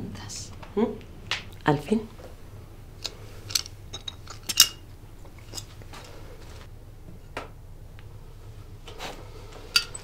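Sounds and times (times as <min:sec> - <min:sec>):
low steady hum: 0:00.0 - 0:10.0
metal flask clinking: 0:03.5 - 0:04.8.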